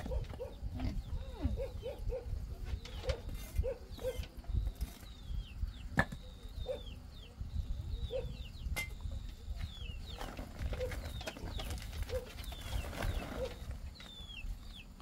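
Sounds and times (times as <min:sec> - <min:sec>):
animal calls: 0:00.0 - 0:04.4, 0:06.1 - 0:08.6.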